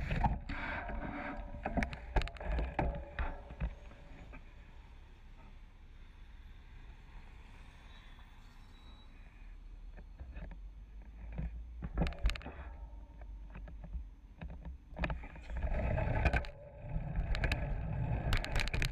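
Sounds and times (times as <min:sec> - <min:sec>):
city traffic rumble: 0:03.7 - 0:11.9
bicycle clicks and knocks: 0:18.3 - 0:18.9.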